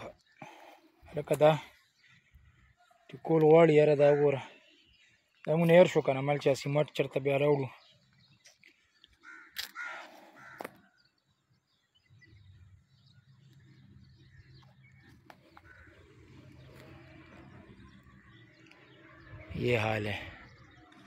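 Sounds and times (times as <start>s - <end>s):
crow cawing: 9.2s - 11.0s, 15.6s - 16.5s.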